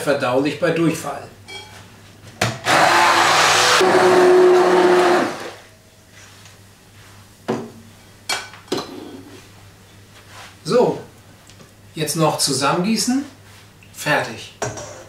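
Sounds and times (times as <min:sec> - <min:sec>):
immersion blender motor whine: 0:02.6 - 0:05.7.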